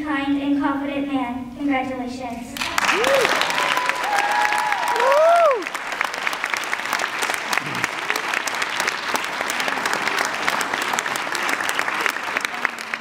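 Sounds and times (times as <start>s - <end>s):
audience applauding: 2.6s - 13.0s
whooping cheer: 2.8s - 5.8s.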